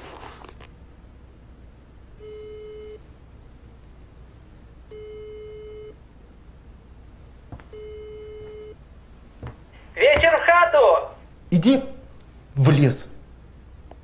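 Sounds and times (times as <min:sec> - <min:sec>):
phone ringback beep: 0:02.2 - 0:03.0, 0:04.9 - 0:06.0, 0:07.7 - 0:08.8.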